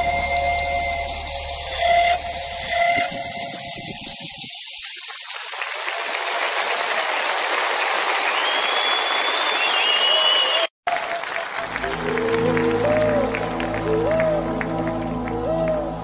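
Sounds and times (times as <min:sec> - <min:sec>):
steady hiss: 0:00.0 - 0:06.2.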